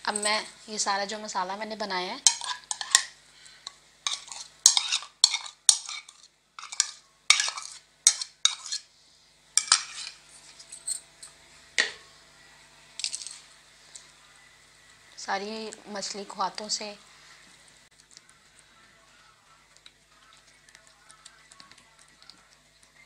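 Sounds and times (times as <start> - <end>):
spoon scraping a bowl: 2.2 - 3.1, 4.0 - 8.9, 9.6 - 11.0.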